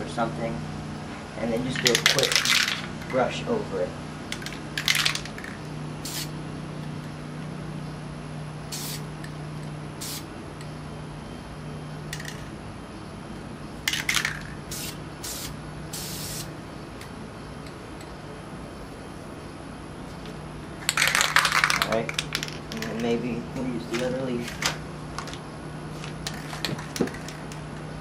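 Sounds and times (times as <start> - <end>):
steady low hum: 0.0 - 28.0
spray paint can hissing bursts: 4.3 - 6.4, 8.7 - 9.2, 10.0 - 10.3, 13.9 - 16.5.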